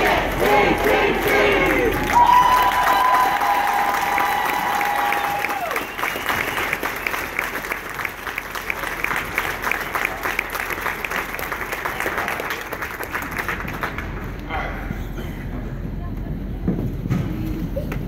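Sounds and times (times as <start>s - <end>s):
marching band held chord: 0.0s - 2.2s
crowd applauding: 0.0s - 14.7s.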